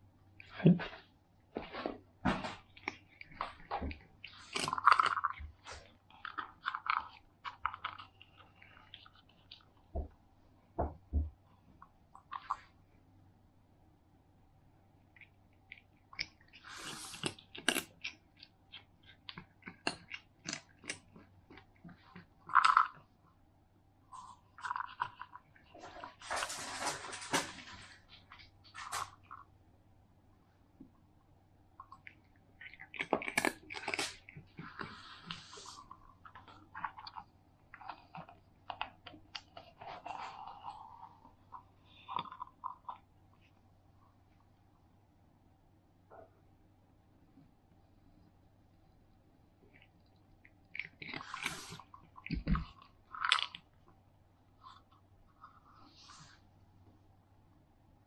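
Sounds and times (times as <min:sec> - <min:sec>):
cat crunching dry kibble: 0:02.5 - 0:09.9, 0:15.1 - 0:23.1, 0:24.1 - 0:29.5, 0:31.8 - 0:43.5, 0:49.7 - 0:53.8.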